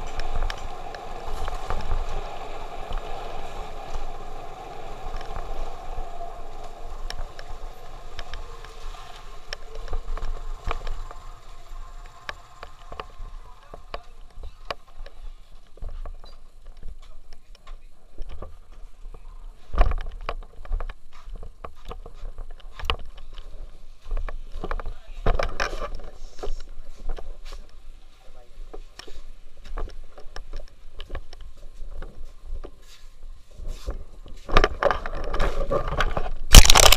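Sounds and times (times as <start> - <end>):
motorcycle engine: 0.0 - 14.7
wind rumble on microphone: 0.0 - 15.1.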